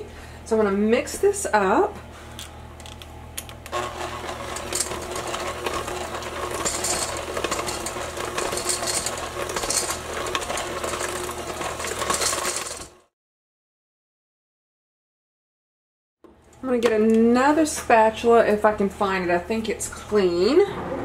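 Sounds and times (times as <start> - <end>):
beaters scraping a steel bowl: 3.7 - 13.0
electric hand mixer running: 3.7 - 13.1.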